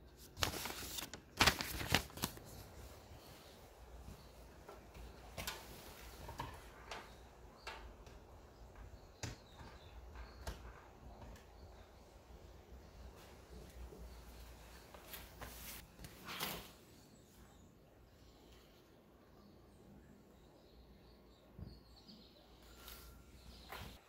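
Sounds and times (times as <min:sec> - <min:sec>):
paper rustling: 0:00.1 - 0:02.9, 0:14.9 - 0:16.8.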